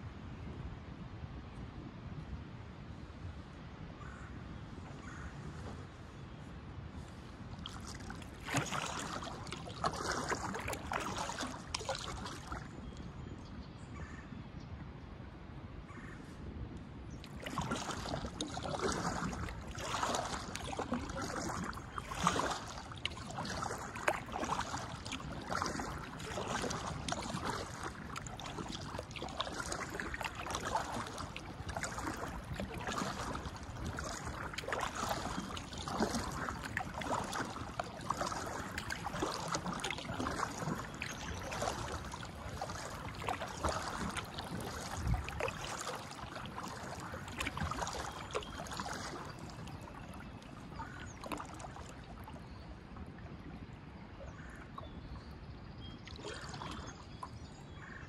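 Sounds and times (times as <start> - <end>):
paddle splashing in water: 7.0 - 13.1, 17.1 - 58.0
water running off paddle: 7.6 - 12.7, 17.2 - 52.4.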